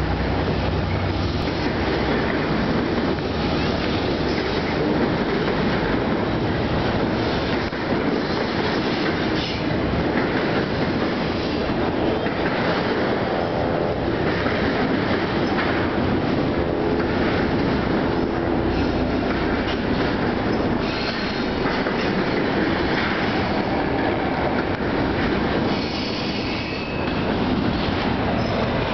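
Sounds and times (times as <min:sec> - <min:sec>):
freight train wheels rumbling on rail: 0:00.0 - 0:28.9
faint wheel squeal: 0:20.8 - 0:21.5.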